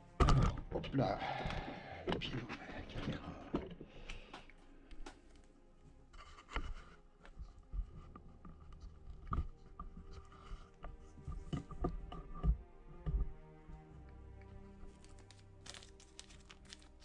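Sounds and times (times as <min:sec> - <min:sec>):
tool clicks taps and scraping: 0:06.2 - 0:13.3.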